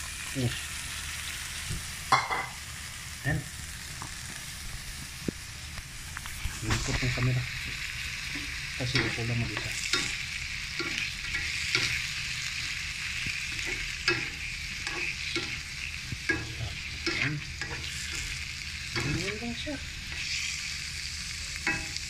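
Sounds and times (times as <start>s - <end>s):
shrimp sizzling in a wok: 0.0s - 22.0s
spatula scraping a pan: 8.3s - 20.6s.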